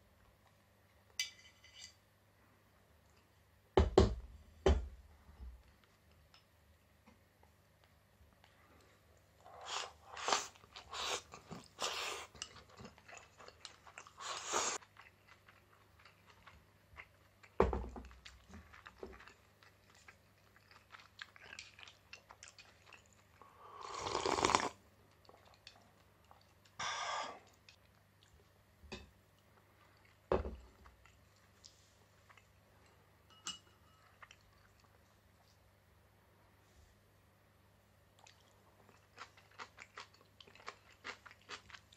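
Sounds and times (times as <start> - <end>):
chewing and crunching: 9.5 - 23.4, 38.2 - 41.9.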